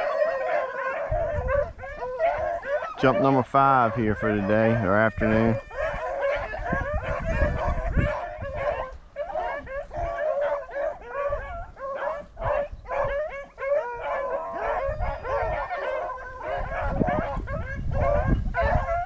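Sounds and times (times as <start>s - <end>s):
dogs baying and yelping: 0.0s - 19.0s.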